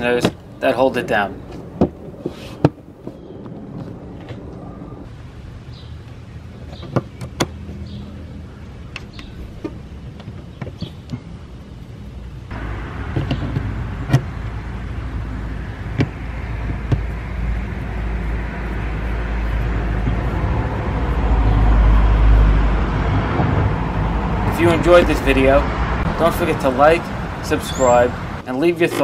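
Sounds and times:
steady low rumble: 0:07.5 - 0:28.5.

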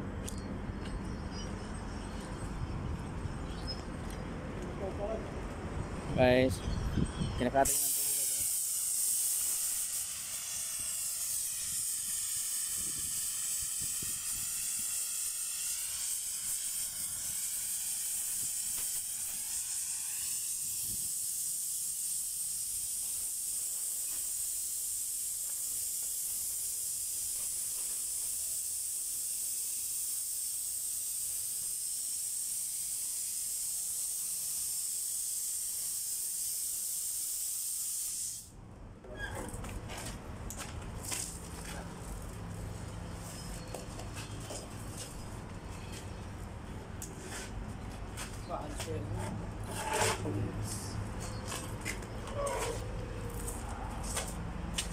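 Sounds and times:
plasma cutter hissing: 0:07.4 - 0:38.5.

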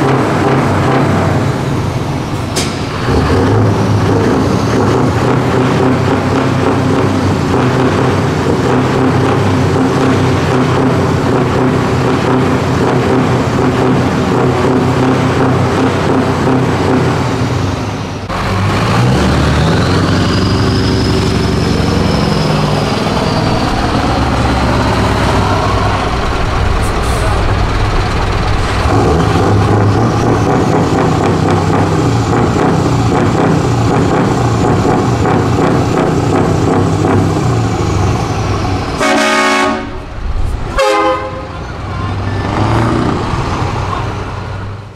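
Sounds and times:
truck engine running loud: 0:00.0 - 0:44.9
truck horn blasts: 0:39.0 - 0:40.1, 0:40.7 - 0:41.6.

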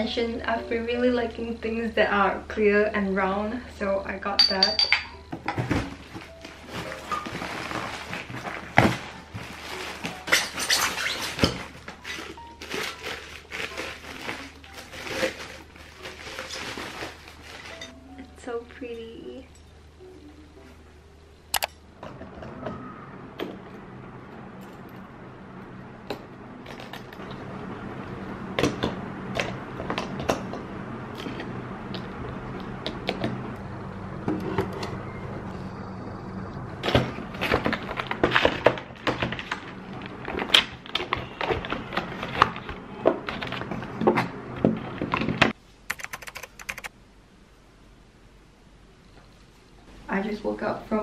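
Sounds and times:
plastic wrapping rustling: 0:05.5 - 0:18.0, 0:36.9 - 0:45.5
steady low hum: 0:13.1 - 0:51.0.

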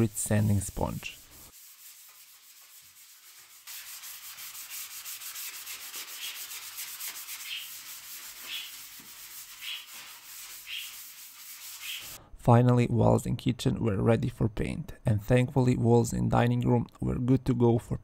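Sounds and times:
sanding sponge scratching wall: 0:00.0 - 0:12.2.

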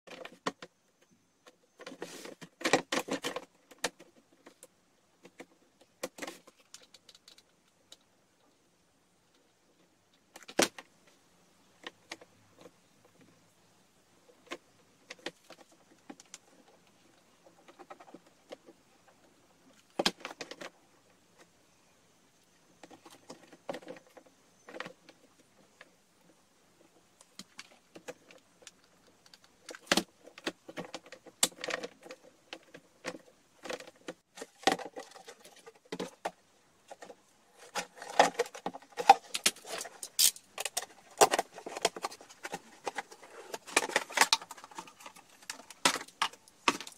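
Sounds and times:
plastic clicks and knocks: 0:27.2 - 0:46.9.

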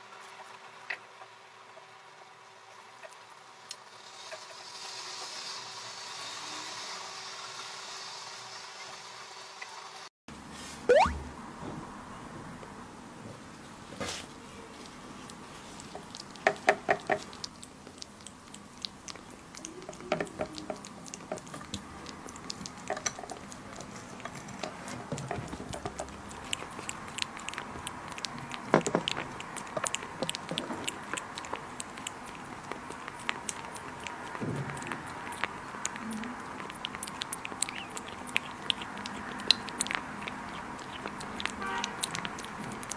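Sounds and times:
kitten lapping: 0:14.7 - 0:42.9.

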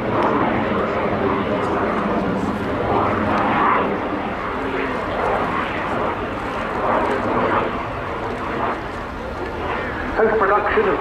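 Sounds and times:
jet engines in flight: 0:00.0 - 0:11.0.

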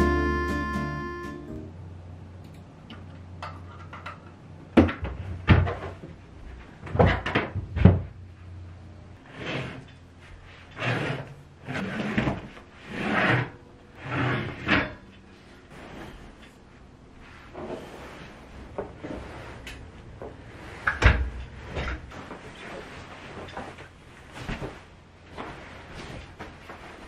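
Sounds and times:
sofa bed frame scraping: 0:09.2 - 0:27.0.

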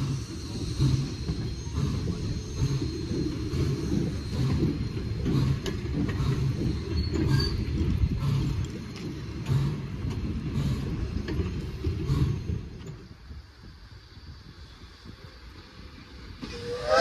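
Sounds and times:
rail clacking: 0:00.0 - 0:13.1, 0:16.3 - 0:17.0
train wheels rumbling on rails: 0:00.0 - 0:17.0.

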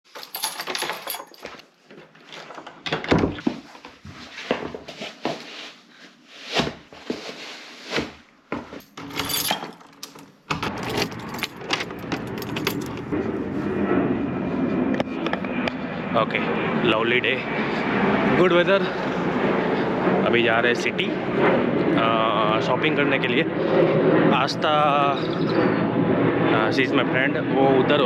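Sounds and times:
keys jangling: 0:00.1 - 0:01.6, 0:08.8 - 0:13.1
clothes and shoes rustling: 0:03.4 - 0:09.5
door latches clicking: 0:09.0 - 0:13.0.

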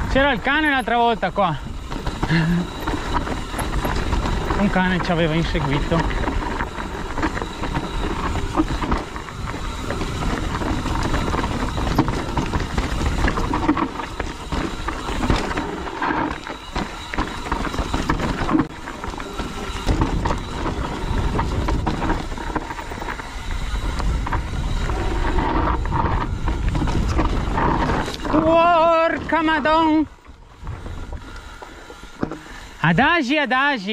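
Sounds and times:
wind rumble on microphone: 0:00.0 - 0:32.8
bike rattling over rocks: 0:00.0 - 0:33.9
tyre noise: 0:00.0 - 0:33.9.

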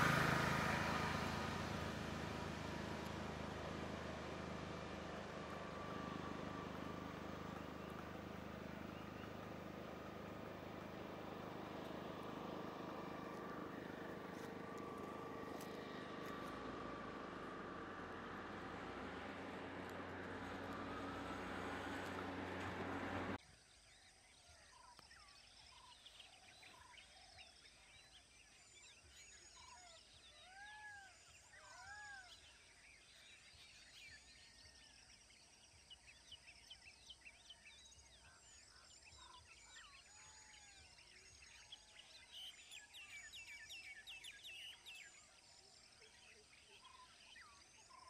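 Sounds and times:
auto-rickshaw engine driving past: 0:00.0 - 0:23.4.

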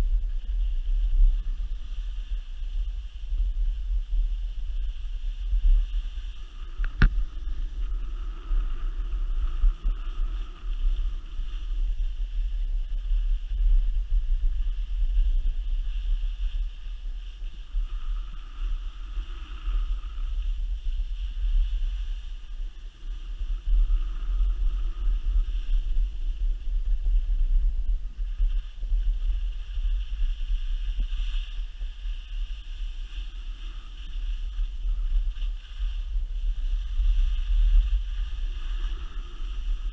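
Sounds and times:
wind rumbling on microphone: 0:00.0 - 0:39.9
skis scraping over snow: 0:23.1 - 0:39.9.

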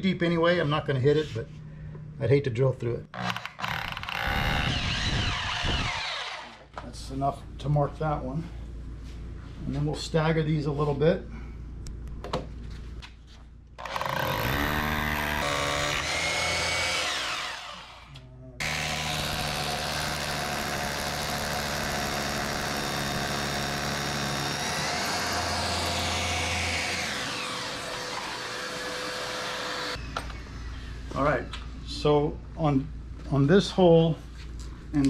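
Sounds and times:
hammer drill boring concrete: 0:03.2 - 0:06.6, 0:13.8 - 0:30.0
vacuum running: 0:18.6 - 0:30.0.

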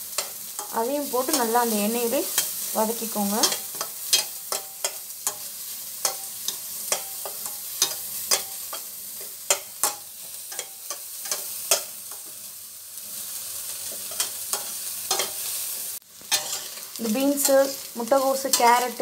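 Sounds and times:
vegetables sizzling in oil: 0:00.0 - 0:19.0
metal spatula scraping pot: 0:16.3 - 0:19.0.

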